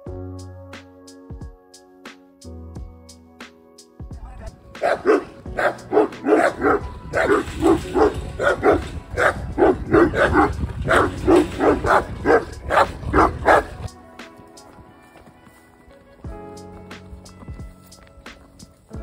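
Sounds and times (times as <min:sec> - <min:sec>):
dogs barking: 0:04.8 - 0:13.9.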